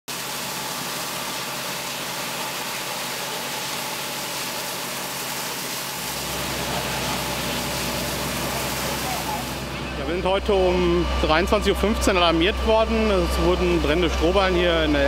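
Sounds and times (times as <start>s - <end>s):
fire engine rumbling: 6.0s - 15.0s.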